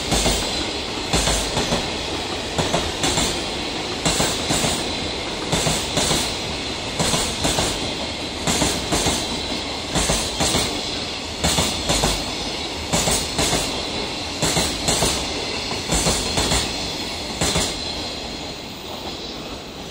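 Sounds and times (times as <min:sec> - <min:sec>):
freight train rumbling: 0:00.0 - 0:19.9.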